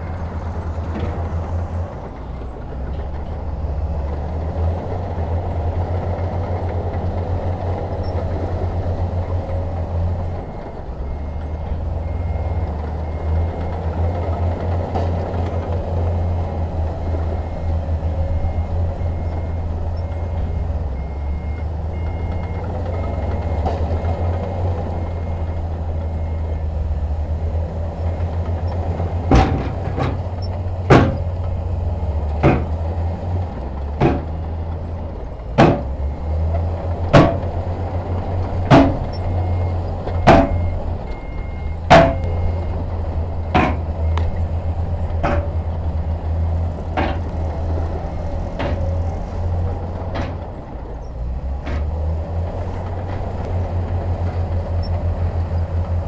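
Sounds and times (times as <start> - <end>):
diesel engine running: 0.0 - 56.0
sharp knocks: 30.9 - 31.3, 32.4 - 32.8, 35.6 - 35.9, 37.1 - 37.5, 40.2 - 40.6, 41.9 - 42.4, 43.5 - 43.9.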